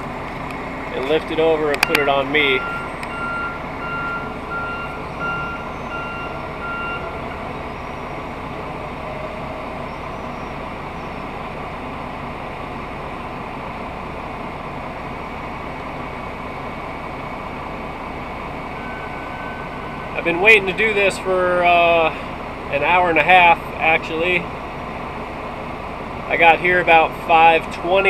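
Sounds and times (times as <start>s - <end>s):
engine hum: 0.0s - 28.0s
vehicle backup alarm beeping: 0.7s - 11.8s, 16.5s - 21.0s.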